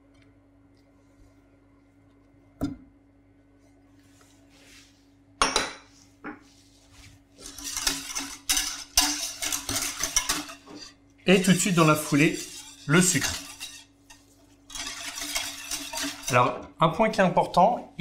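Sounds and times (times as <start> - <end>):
faint steady hum: 0.0 - 18.0
whisk beating in a metal saucepan: 7.3 - 17.9.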